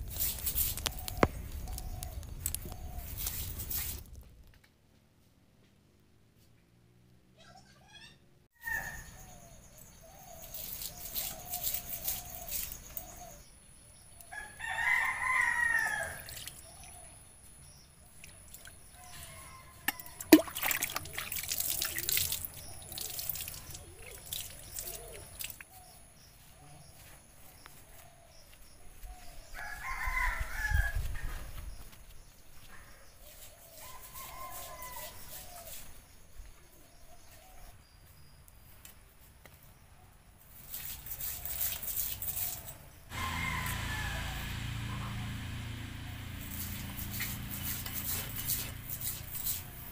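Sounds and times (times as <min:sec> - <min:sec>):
roosters crowing: 0:08.6 - 0:09.4, 0:14.3 - 0:16.4, 0:19.0 - 0:20.3, 0:29.5 - 0:31.4, 0:33.6 - 0:35.6, 0:42.6 - 0:49.9.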